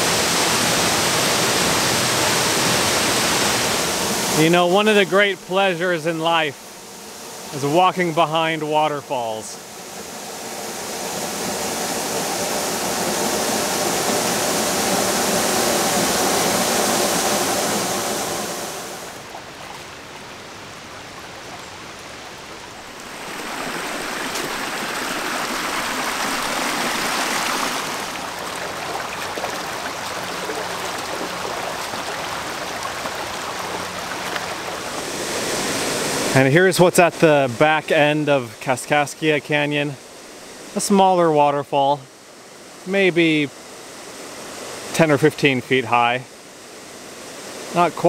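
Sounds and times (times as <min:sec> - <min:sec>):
waterfall splashing: 0:00.0 - 0:06.6, 0:07.4 - 0:09.6, 0:10.3 - 0:38.3.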